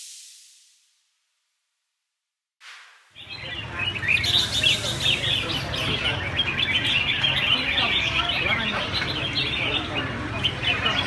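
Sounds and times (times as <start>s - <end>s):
birds chirping and singing: 3.2s - 11.0s.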